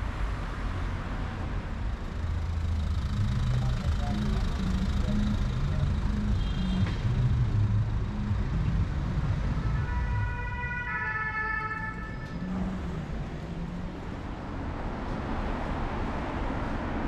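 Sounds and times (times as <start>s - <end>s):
street traffic rumble: 0.0s - 17.0s
emergency vehicle siren: 2.9s - 14.3s.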